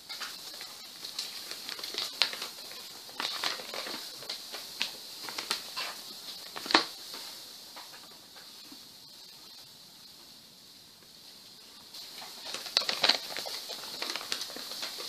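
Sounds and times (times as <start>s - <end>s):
paper crinkling: 0.1s - 7.2s, 12.0s - 15.0s.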